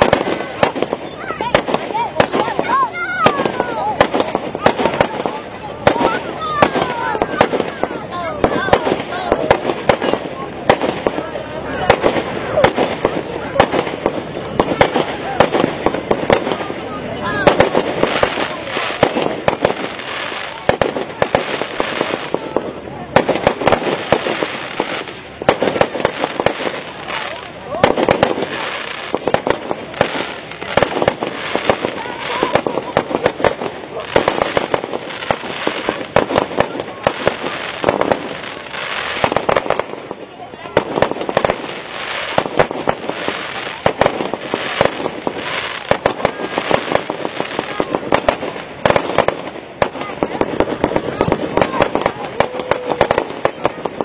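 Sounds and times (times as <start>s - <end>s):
firework shells bursting: 17.4s - 54.0s.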